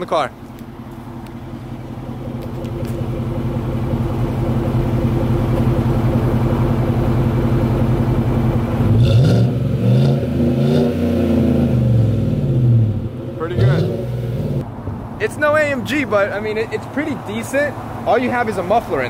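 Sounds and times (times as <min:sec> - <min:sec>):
pickup engine idling and revving: 0:00.3 - 0:19.0.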